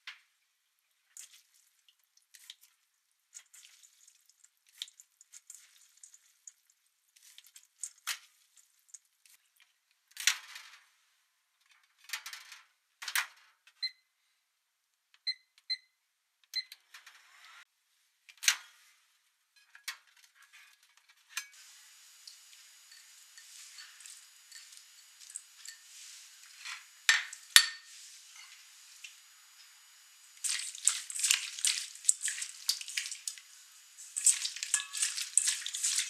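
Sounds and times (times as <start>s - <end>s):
wet noodles rustling and dripping: 0.7s - 10.0s, 21.6s - 26.6s, 30.4s - 36.0s.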